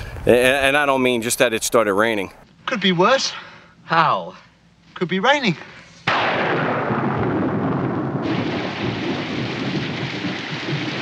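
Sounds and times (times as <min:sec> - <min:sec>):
thunder rumbling: 0:06.2 - 0:11.0
heavy rain pouring: 0:08.3 - 0:11.0.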